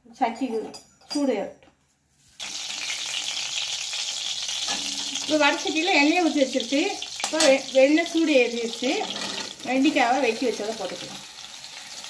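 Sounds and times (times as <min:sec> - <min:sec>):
hot oil sizzling: 0:02.4 - 0:12.0.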